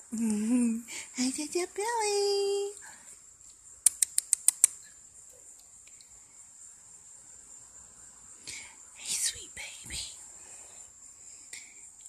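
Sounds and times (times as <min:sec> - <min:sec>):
crickets buzzing: 0:00.0 - 0:12.0
sharp clicks: 0:03.5 - 0:04.9.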